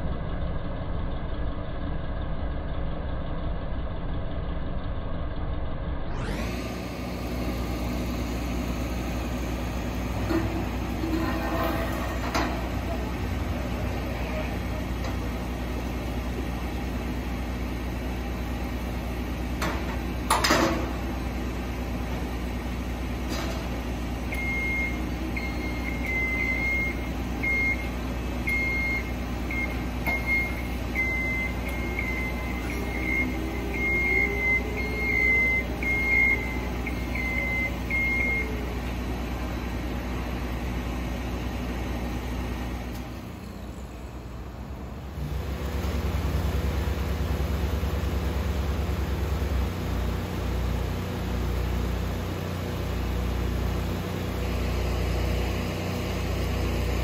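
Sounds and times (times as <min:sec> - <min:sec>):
high-pitched alarm beeps: 0:28.5 - 0:38.5.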